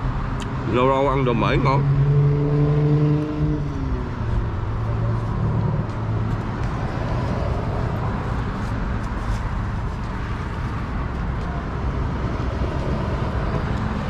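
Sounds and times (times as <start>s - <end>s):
passing vehicle engine hum: 0.0s - 14.0s
traffic noise: 0.0s - 14.0s.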